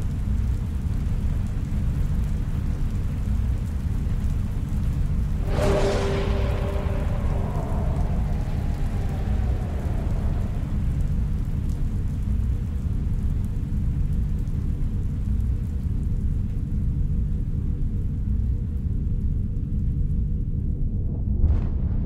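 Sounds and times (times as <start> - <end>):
deep rumbling synth drone: 5.2 - 13.4
faint hum: 5.2 - 21.0
falling electronic whine: 5.4 - 12.0.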